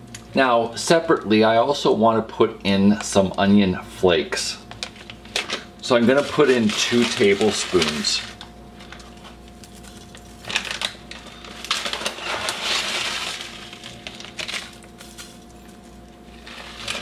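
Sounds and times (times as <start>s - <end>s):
dried flakes rustling and pattering: 4.7s - 17.0s.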